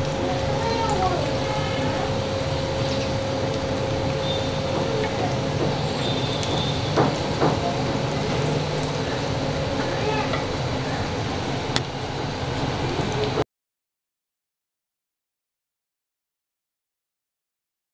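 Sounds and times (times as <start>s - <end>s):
oil sizzling in a pan: 0.0s - 13.4s.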